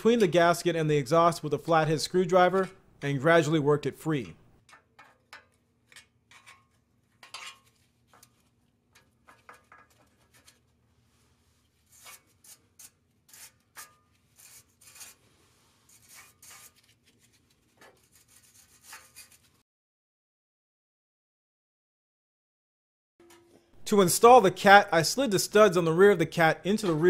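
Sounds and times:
screwdriver scraping metal: 4.6s - 10.7s, 11.8s - 15.2s, 15.8s - 19.5s.

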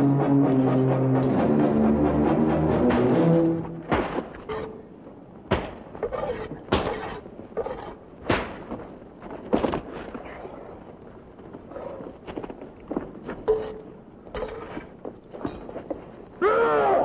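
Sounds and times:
heavy thuds of blows: 5.5s - 6.0s.

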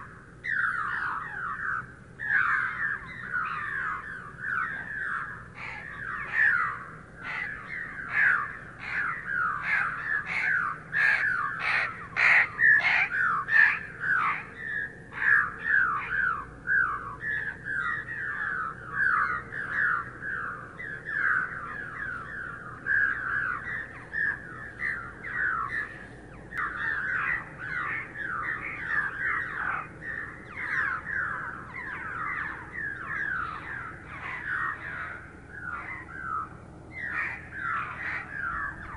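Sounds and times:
flock of birds chirping: 0.0s - 38.9s.

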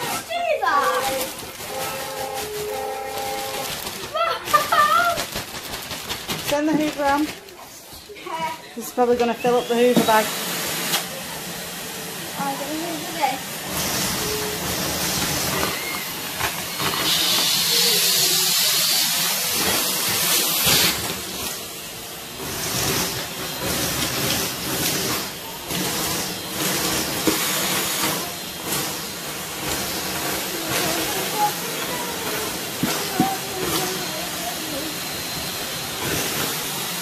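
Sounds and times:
wood shavings rattling in tube: 0.0s - 7.5s
vacuum cleaner suction: 0.0s - 37.0s.

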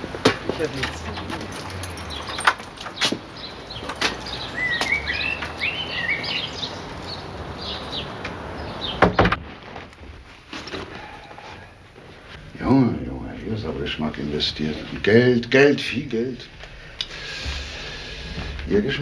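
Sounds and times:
footsteps: 0.0s - 5.6s, 9.4s - 12.6s, 16.3s - 19.0s
small bird chirping: 1.8s - 9.0s
wooden door thudding shut: 9.0s - 9.4s.

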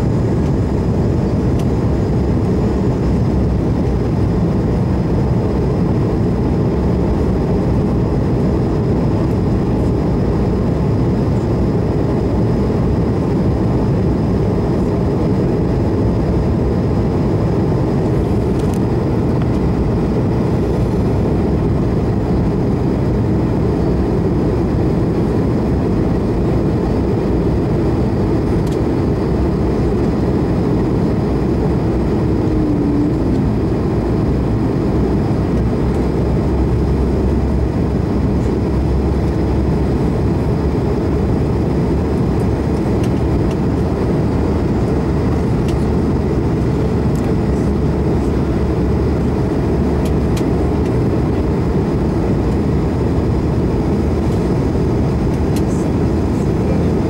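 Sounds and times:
jet engine low rumble: 0.0s - 57.0s
faint high whine: 31.4s - 34.9s.

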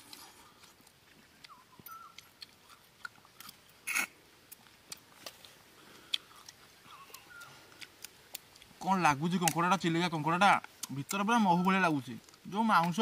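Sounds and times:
person chewing and sucking: 0.0s - 8.8s.

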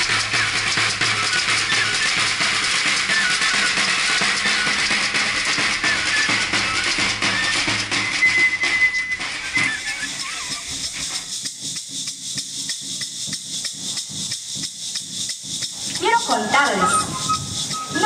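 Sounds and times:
high flute melody: 0.0s - 11.2s, 15.9s - 18.0s
steady drumming: 0.0s - 18.0s.

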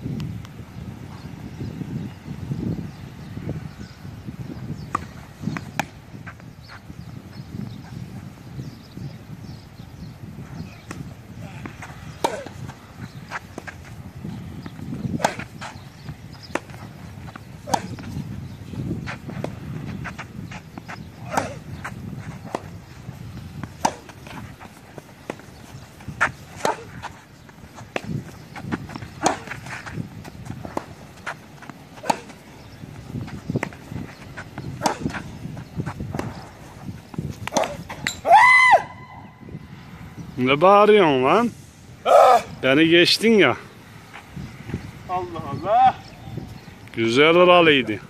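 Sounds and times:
tennis ball bouncing: 4.8s - 6.4s, 10.8s - 38.3s
racket hitting tennis ball: 10.8s - 38.4s.

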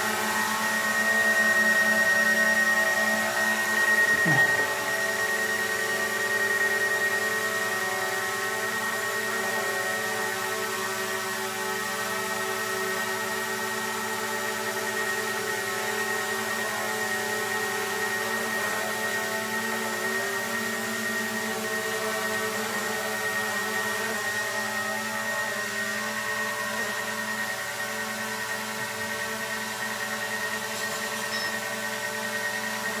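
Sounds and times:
drone propellers whining: 0.1s - 5.9s.

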